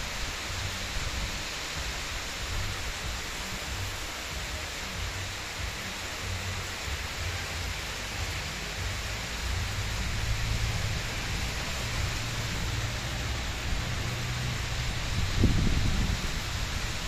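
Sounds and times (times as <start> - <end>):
heavy rain hissing: 0.0 - 17.0.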